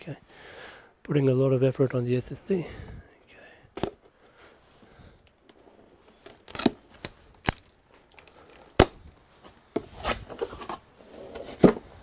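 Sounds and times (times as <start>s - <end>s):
cardboard flaps scraping and rustling: 9.4s - 12.0s.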